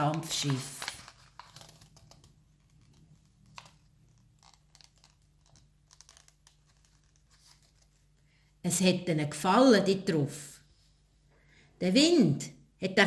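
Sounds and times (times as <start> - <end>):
paper rustling and crinkling: 0.0 - 8.2.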